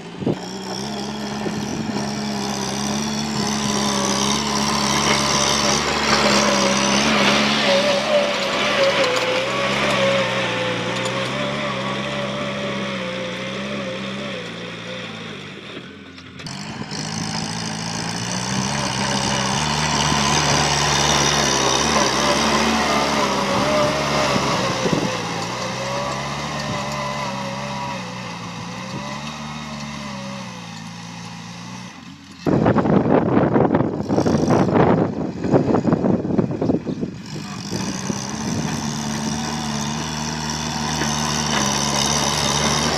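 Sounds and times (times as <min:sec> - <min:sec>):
tractor diesel engine under load: 0:00.0 - 0:42.9
wind buffeting microphone: 0:20.5 - 0:25.6, 0:32.5 - 0:39.4.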